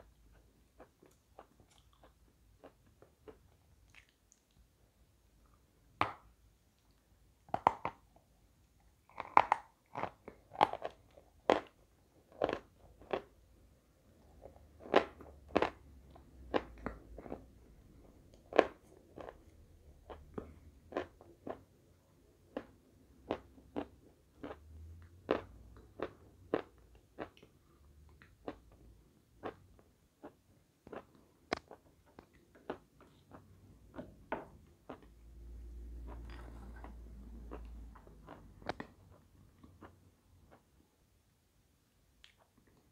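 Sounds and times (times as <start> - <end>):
crunchy chewing: 9.1 - 13.3.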